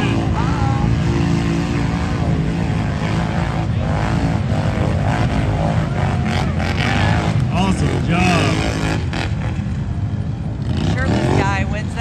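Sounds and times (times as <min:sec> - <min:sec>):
atv engines droning: 0:00.0 - 0:12.0.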